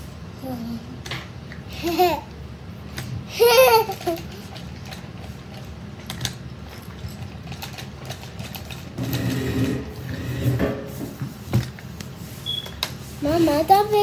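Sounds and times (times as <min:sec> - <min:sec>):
toy robot gears clicking and whirring: 0:03.4 - 0:05.1.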